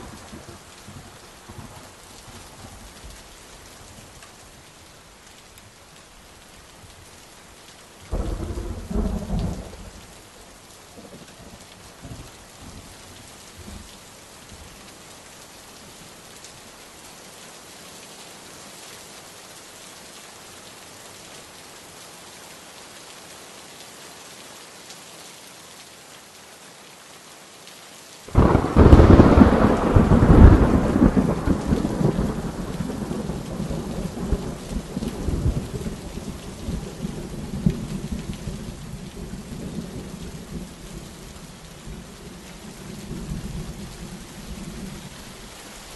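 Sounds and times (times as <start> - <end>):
rain hiss: 0.0 - 45.9
thunderclap: 28.4 - 33.0.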